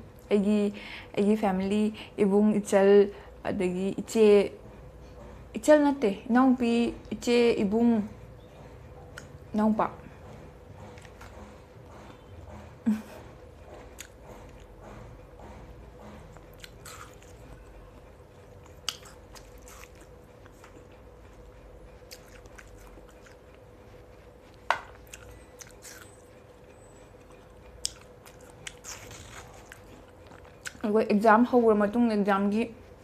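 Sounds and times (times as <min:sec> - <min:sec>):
faint steady hum: 0:00.0 - 0:33.0
person chewing watermelon: 0:09.0 - 0:09.4, 0:10.2 - 0:12.6, 0:13.6 - 0:30.8.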